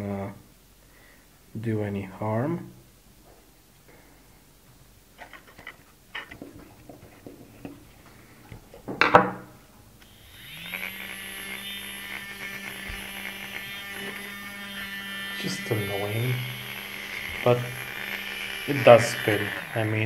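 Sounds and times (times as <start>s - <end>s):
small motor whirring hum: 10.0s - 20.0s.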